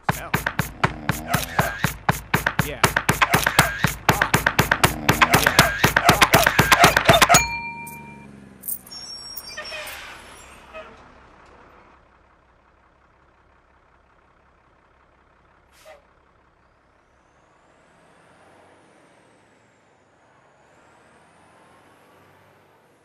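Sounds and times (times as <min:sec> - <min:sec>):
bus air brakes hissing: 0:15.7 - 0:16.0.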